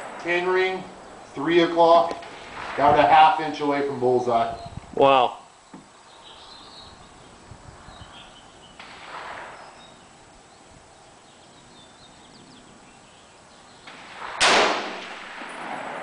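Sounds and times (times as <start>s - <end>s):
faint bird chirps: 4.5s - 4.8s, 5.4s - 8.8s, 9.4s - 13.9s.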